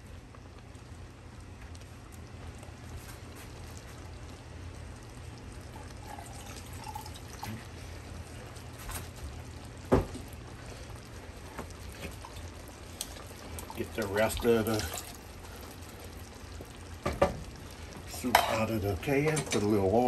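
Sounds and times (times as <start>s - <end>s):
pot simmering with bubbling pops: 0.0s - 20.0s
steady low hum: 0.0s - 20.0s.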